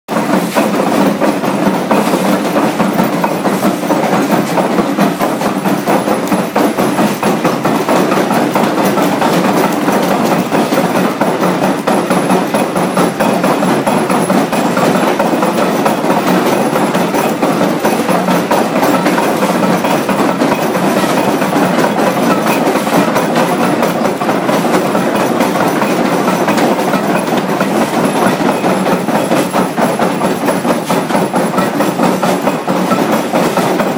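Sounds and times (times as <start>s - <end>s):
stamp mill clattering: 0.1s - 33.9s.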